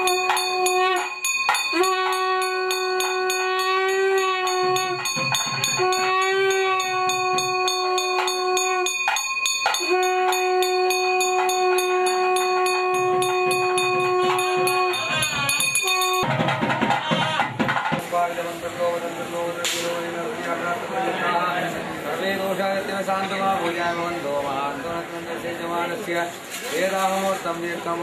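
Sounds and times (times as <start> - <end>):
wind instrument long notes: 0.0 - 16.3
temple bell ringing rapidly: 0.0 - 16.5
drumming bursts: 0.0 - 18.8.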